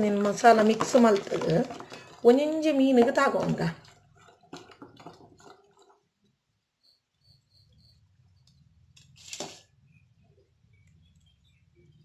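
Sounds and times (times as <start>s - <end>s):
hand scooping paste from steel bowl: 0.0s - 5.9s.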